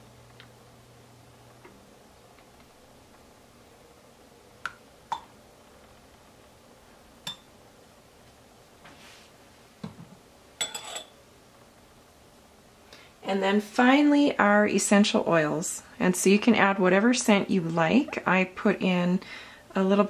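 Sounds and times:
metal spoons clinking against glass: 0:10.6 - 0:11.2.

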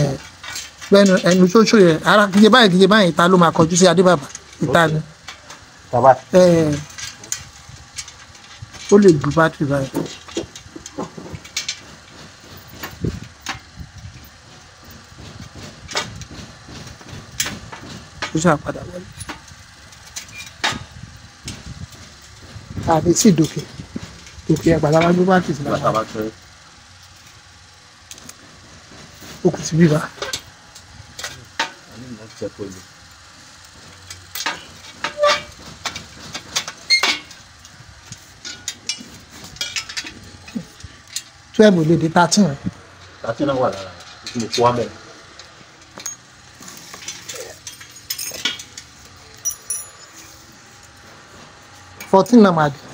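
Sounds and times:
metal bolts and spanner clinking: 0:00.0 - 0:05.6, 0:19.1 - 0:20.8, 0:34.0 - 0:41.3, 0:45.4 - 0:50.6
metal parts clicking and knocking: 0:00.1 - 0:03.0, 0:06.4 - 0:14.3, 0:34.0 - 0:41.3, 0:45.8 - 0:50.5.

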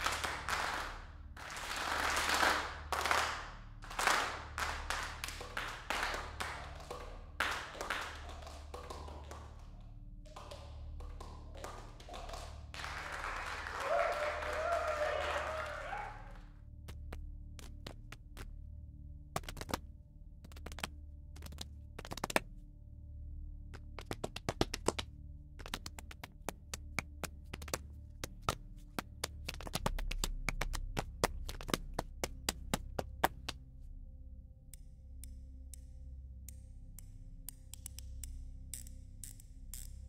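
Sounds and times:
hand claps: 0:00.0 - 0:18.5, 0:19.4 - 0:19.8, 0:20.5 - 0:22.4, 0:23.8 - 0:33.6.

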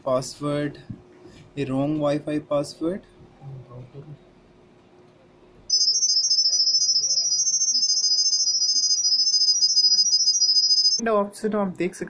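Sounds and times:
high-pitched warbling tones: 0:05.7 - 0:11.0.

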